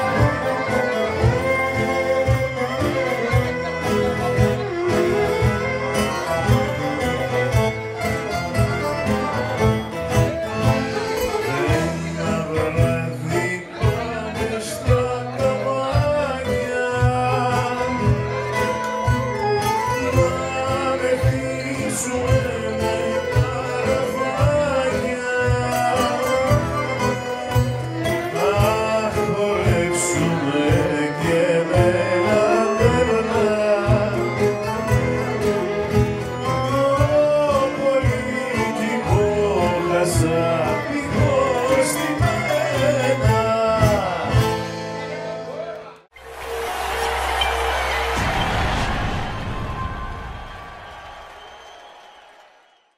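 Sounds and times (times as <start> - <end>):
man singing: 0.0 - 7.5, 10.6 - 45.0
folk band playing: 0.0 - 46.1.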